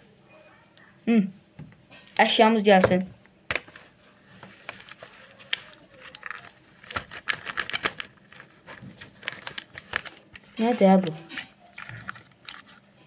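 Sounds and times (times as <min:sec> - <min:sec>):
plush toy rustling and clicking: 0:04.6 - 0:12.8.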